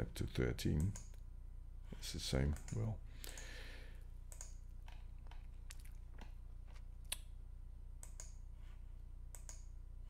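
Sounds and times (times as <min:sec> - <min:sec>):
faint low hum: 0:00.0 - 0:10.0
computer mouse clicking: 0:04.3 - 0:05.5, 0:08.0 - 0:08.4, 0:09.3 - 0:09.7.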